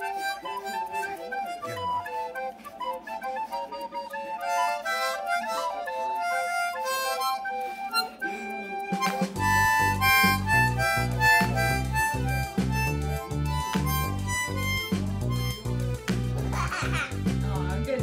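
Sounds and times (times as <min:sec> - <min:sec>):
harmonica melody: 0:00.0 - 0:18.0
backing music with bass and beat: 0:08.9 - 0:18.0.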